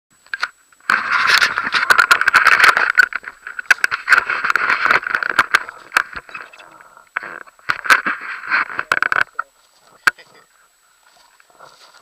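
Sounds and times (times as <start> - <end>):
camera handling rattle and scraping: 0.8 - 6.4, 7.1 - 9.4.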